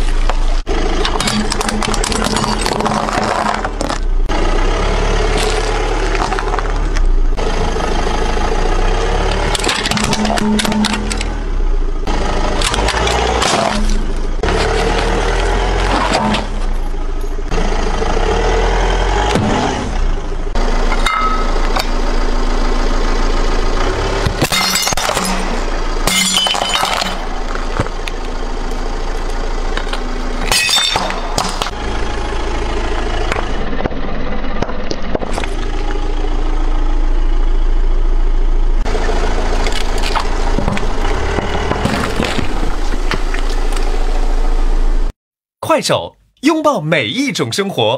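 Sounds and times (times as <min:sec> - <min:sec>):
car engine humming: 0:00.0 - 0:45.1
plastic shattering crashes: 0:24.4 - 0:28.0.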